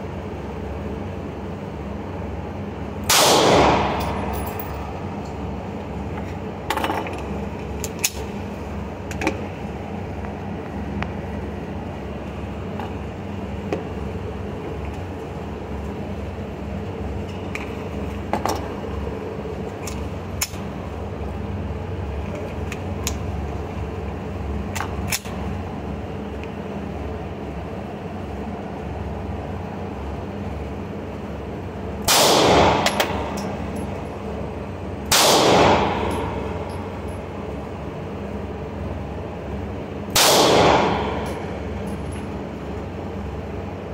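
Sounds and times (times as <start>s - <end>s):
steady background hum: 0.0s - 43.9s
loud pistol shots: 3.1s - 4.3s, 32.1s - 33.2s, 35.1s - 36.6s, 40.2s - 41.3s.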